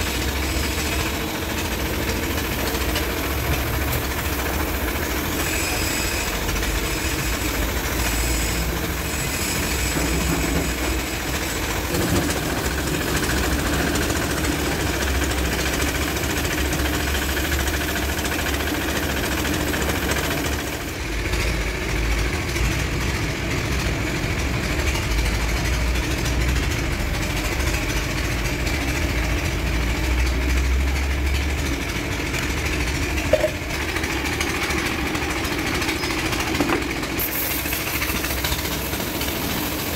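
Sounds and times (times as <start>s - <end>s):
air compressor rumbling: 0.0s - 39.9s
high hiss: 37.2s - 39.9s.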